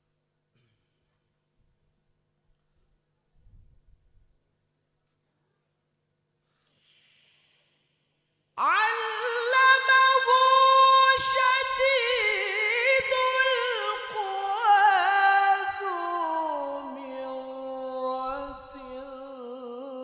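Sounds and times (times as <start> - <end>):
man reciting over a microphone: 8.6 - 20.0.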